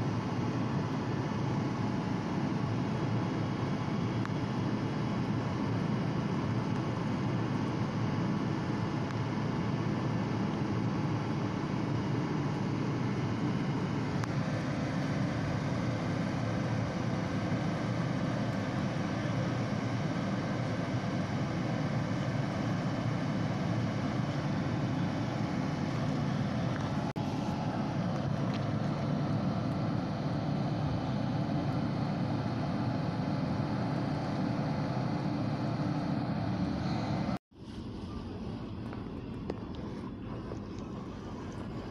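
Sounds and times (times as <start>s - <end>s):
low engine rumble: 0.0s - 41.9s.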